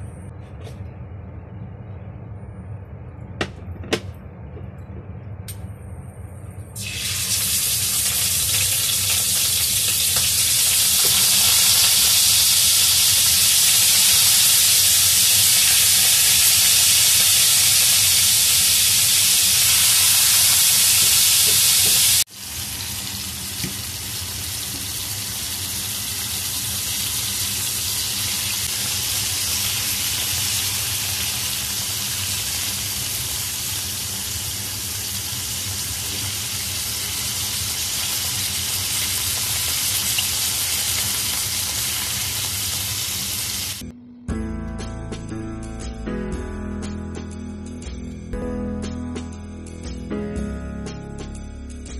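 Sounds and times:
chicken wings sizzling in oil: 6.8s - 43.8s.

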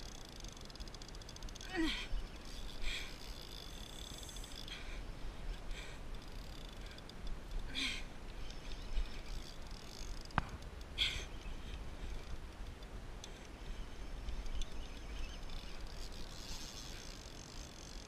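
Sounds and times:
steady low rumble: 1.7s - 16.0s.

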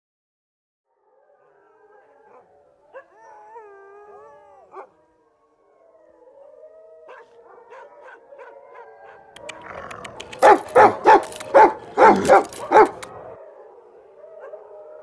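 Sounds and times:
dogs howling: 0.9s - 15.0s
dog barking loudly: 9.4s - 13.4s.

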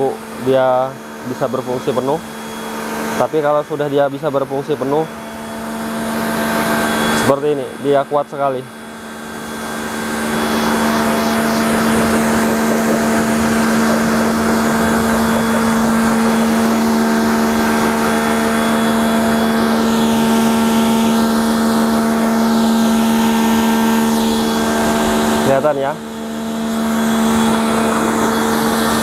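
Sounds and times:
pressure washer motor hum: 0.0s - 29.0s
water jet hissing: 8.9s - 25.4s.

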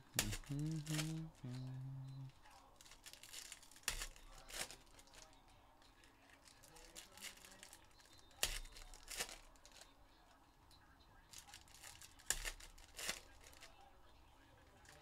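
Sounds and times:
card pack wrappers crinkling: 0.2s - 5.4s, 6.5s - 9.8s.

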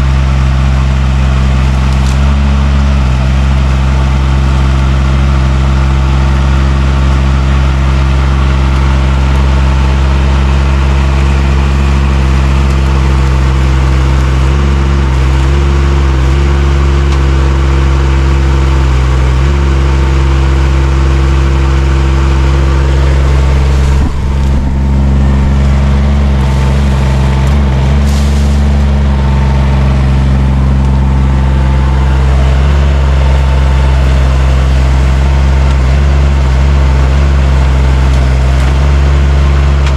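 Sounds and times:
excavator engine running: 0.0s - 39.9s
rake tearing out brush: 1.9s - 2.4s, 23.2s - 29.0s.

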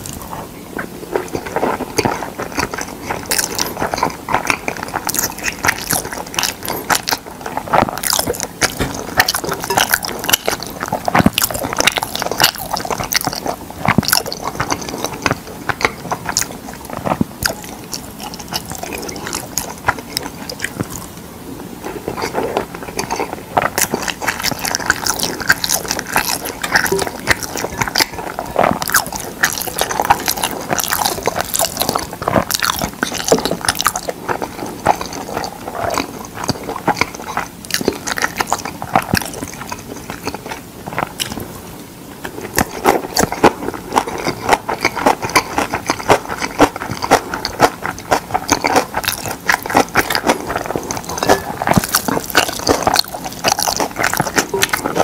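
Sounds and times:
chewing with wet smacks: 0.0s - 55.0s
chopsticks stirring in glass bowl: 42.6s - 55.0s.

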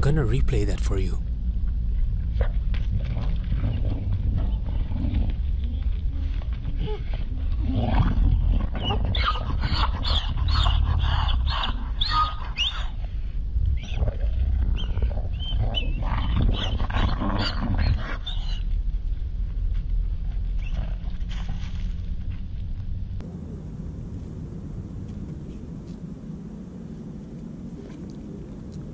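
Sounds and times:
steady low rumble: 0.0s - 28.9s
coyotes snarling and yelping: 2.4s - 18.8s, 20.4s - 21.5s.

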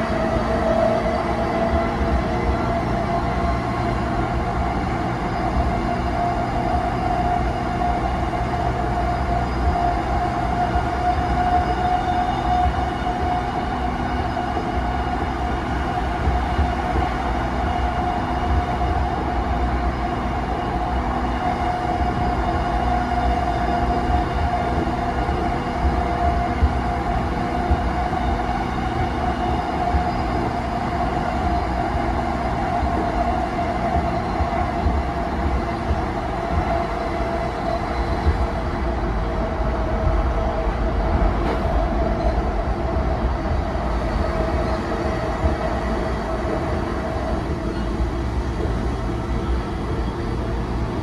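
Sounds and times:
train wheels rumbling on rail: 0.0s - 51.0s.

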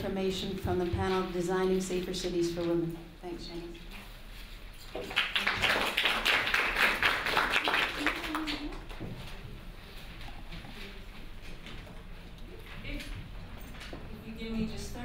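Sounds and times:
audience applauding: 5.0s - 9.0s.

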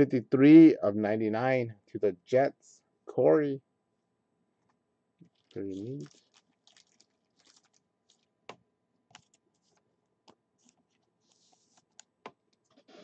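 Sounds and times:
trading cards being handled: 5.2s - 13.0s.

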